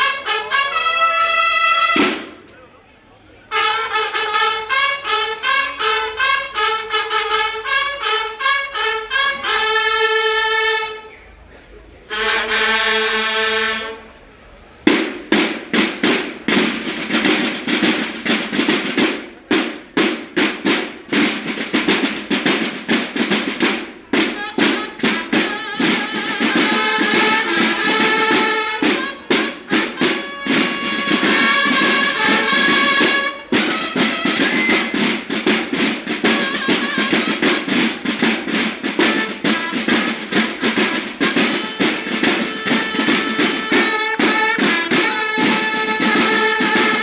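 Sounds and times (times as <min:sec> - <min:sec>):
snare drums beating: 0:00.0 - 0:02.5, 0:14.9 - 0:47.0
bugles playing: 0:00.0 - 0:11.4, 0:12.0 - 0:47.0.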